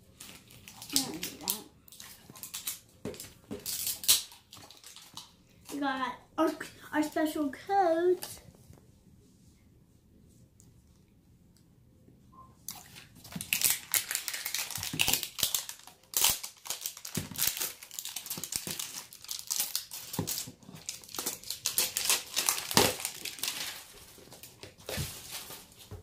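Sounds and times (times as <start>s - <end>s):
paper wrapping tearing and crinkling: 0.0s - 2.9s, 3.6s - 5.3s, 12.7s - 25.9s.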